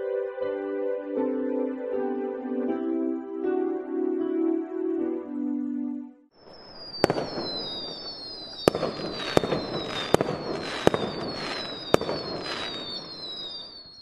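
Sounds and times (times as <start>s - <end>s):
firework bangs: 6.4s - 14.0s
firework crackling: 6.4s - 14.0s
whistling rockets: 6.4s - 14.0s.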